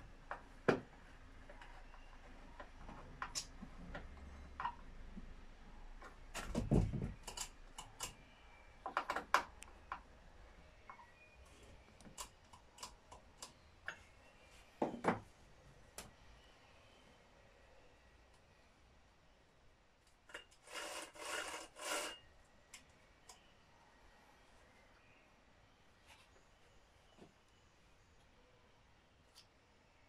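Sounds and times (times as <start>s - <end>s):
knock and clatter: 6.4s - 7.4s.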